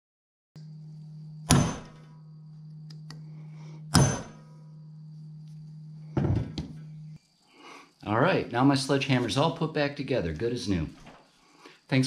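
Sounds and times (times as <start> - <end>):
steady low hum: 0.6 - 9.9
hammer blows on metal: 1.4 - 2.2, 3.8 - 4.8.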